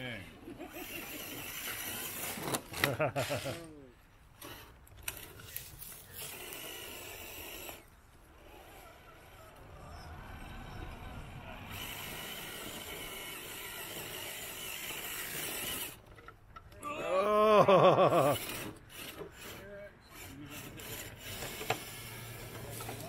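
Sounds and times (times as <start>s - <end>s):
electric motor whirring: 0.7s - 3.4s, 4.4s - 9.4s, 10.3s - 16.1s, 18.1s - 23.0s
tyres scrabbling in dirt: 0.8s - 3.7s, 18.1s - 23.0s.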